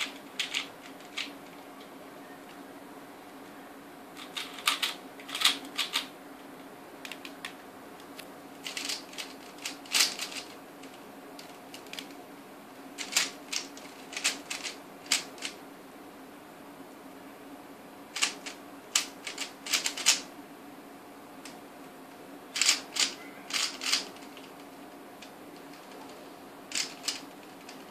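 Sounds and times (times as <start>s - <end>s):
puzzle cube turning clicks: 22.6s - 24.6s, 26.7s - 27.8s.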